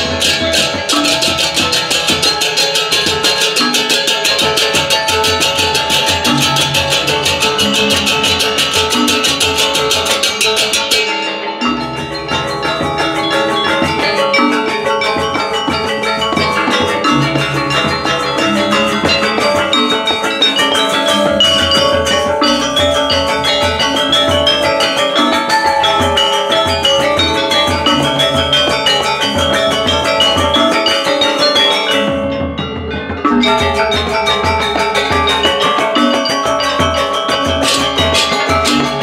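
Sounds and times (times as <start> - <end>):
drums: 0.0 - 39.0
hand cymbals clashing: 0.0 - 39.0
metallophones playing melody: 0.0 - 39.0.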